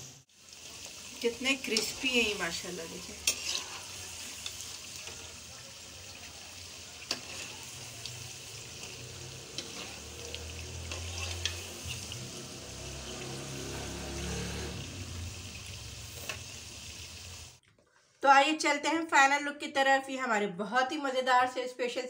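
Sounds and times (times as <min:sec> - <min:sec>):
food sizzling in hot oil: 0:00.0 - 0:17.6.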